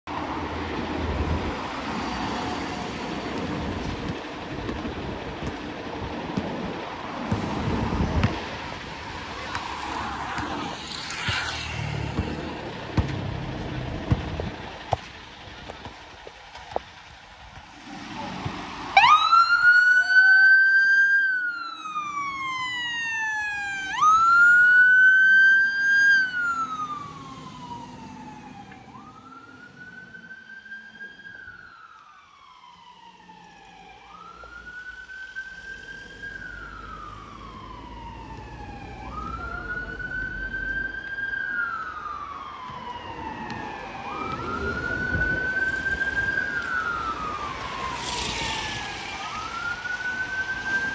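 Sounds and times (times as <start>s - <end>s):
fire engine siren wailing: 0.2s - 50.9s.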